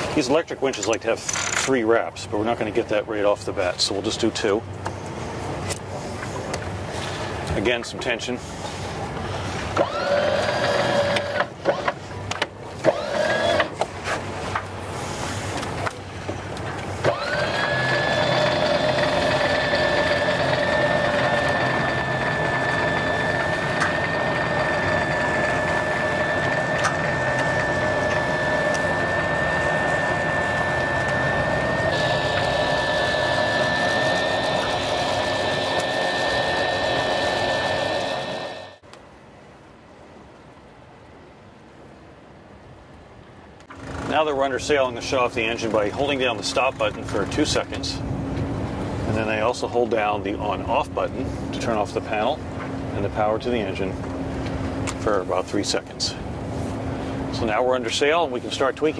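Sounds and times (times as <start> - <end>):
electric winch motor whine: 9.7 - 12.0, 12.8 - 13.8, 17.0 - 38.8.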